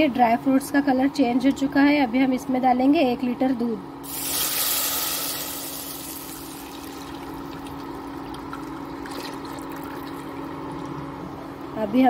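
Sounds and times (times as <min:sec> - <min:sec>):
steady low hum: 0:00.0 - 0:12.0
milk pouring into pot: 0:04.1 - 0:10.9.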